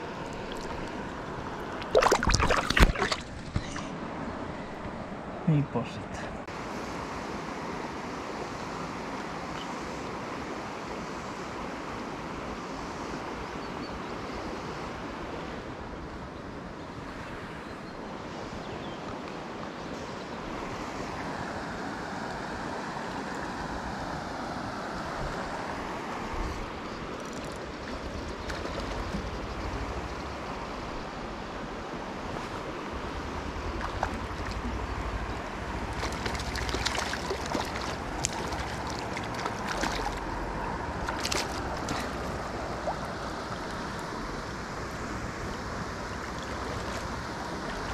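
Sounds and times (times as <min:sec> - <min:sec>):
flowing river water: 0:00.0 - 0:47.9
wind rumble on microphone: 0:23.5 - 0:47.9.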